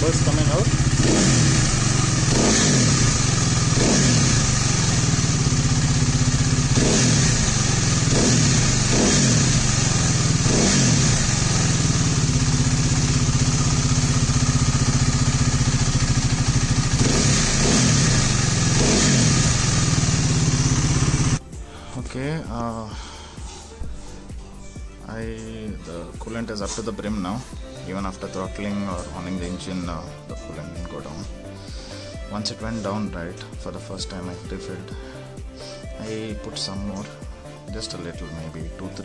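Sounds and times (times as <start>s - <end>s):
motorcycle engine idling: 0.0s - 21.4s.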